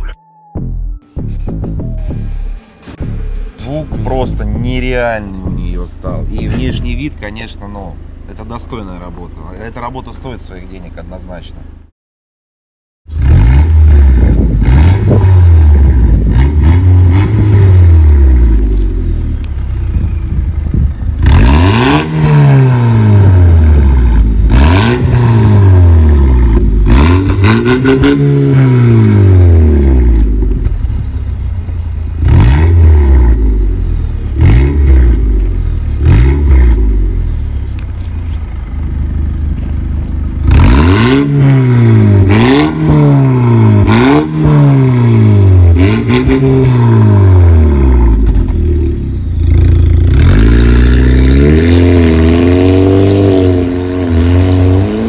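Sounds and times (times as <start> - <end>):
car engine revving: 1.1 - 9.4, 13.1 - 55.0.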